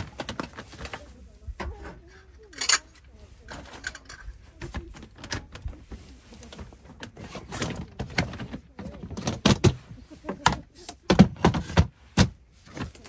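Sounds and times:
hard objects knocking and clattering: 0:07.6 - 0:13.0.

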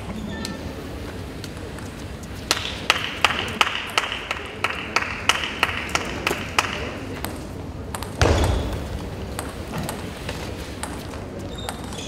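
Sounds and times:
rhythmic clapping: 0:02.4 - 0:07.2.

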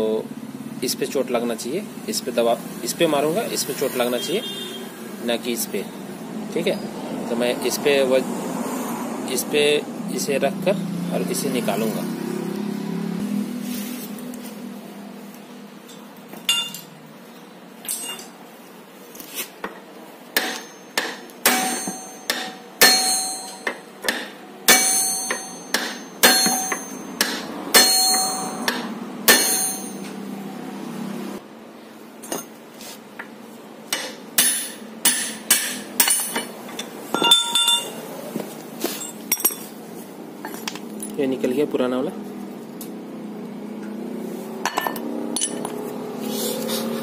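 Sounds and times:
hammer striking steel rod: 0:20.4 - 0:30.2, 0:33.9 - 0:36.5, 0:37.2 - 0:38.0.

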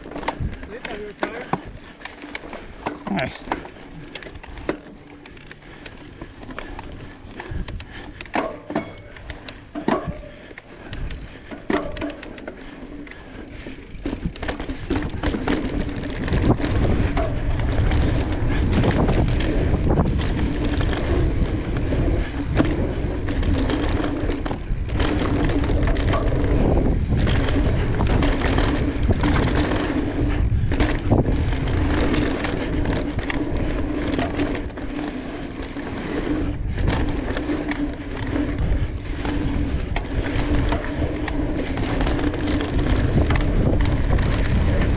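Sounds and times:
bike clicks and rattles: 0:00.0 - 0:44.9
bike tyres on loose dirt: 0:00.0 - 0:44.9
wind rumbling on microphone: 0:13.5 - 0:44.9.

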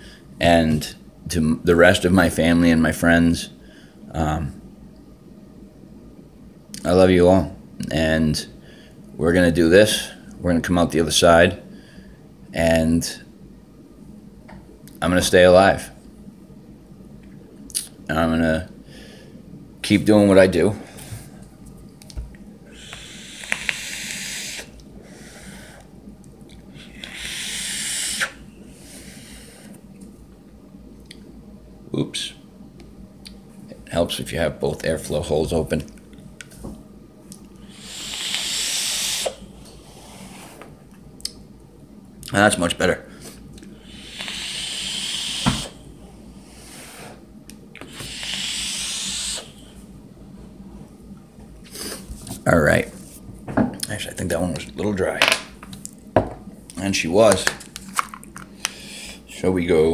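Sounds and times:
vape hissing and sizzling: 0:22.8 - 0:25.5, 0:26.8 - 0:29.6, 0:37.7 - 0:39.4, 0:43.8 - 0:45.8, 0:47.9 - 0:49.6
vape click: 0:22.9 - 0:24.2.

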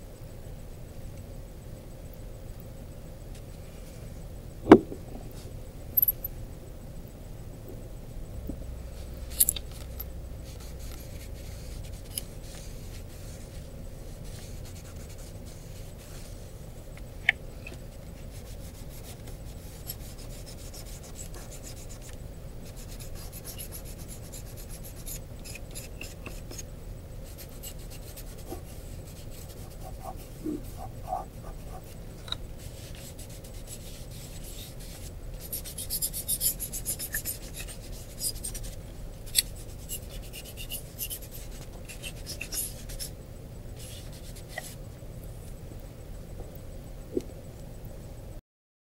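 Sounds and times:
charcoal scratching on paper: 0:10.5 - 0:16.4, 0:18.2 - 0:32.0, 0:32.6 - 0:43.1, 0:43.8 - 0:44.8.

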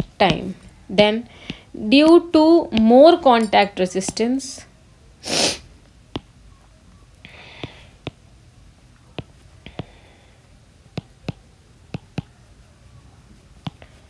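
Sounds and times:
stylus tapping on tablet screen: 0:00.0 - 0:00.7, 0:02.7 - 0:04.3, 0:06.1 - 0:06.3, 0:07.3 - 0:08.2, 0:09.0 - 0:10.1, 0:10.9 - 0:12.4, 0:13.6 - 0:14.0
soft scratchy hiss: 0:00.0 - 0:14.0.

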